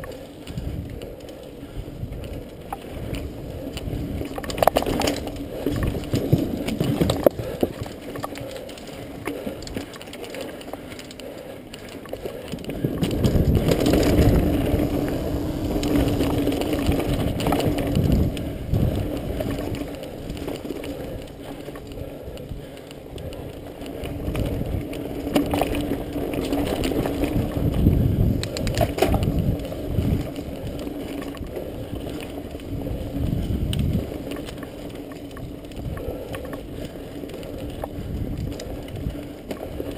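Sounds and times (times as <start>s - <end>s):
bike tyres rumbling over dirt trail: 0.0s - 39.9s
bike knocking over bumps: 12.5s - 21.8s.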